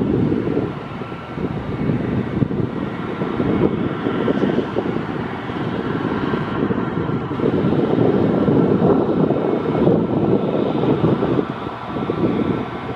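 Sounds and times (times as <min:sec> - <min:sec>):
jet engine noise with whine: 0:00.0 - 0:12.9
wind rumble on microphone: 0:00.0 - 0:12.9.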